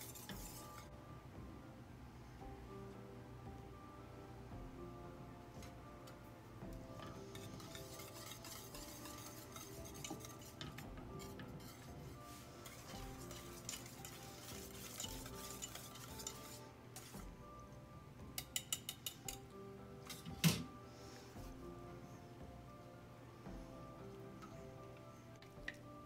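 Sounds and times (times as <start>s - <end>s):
whisk scraping a metal pan: 0.0s - 0.9s, 7.0s - 17.3s
whisk tapping on pan: 7.0s - 17.3s, 18.4s - 19.4s.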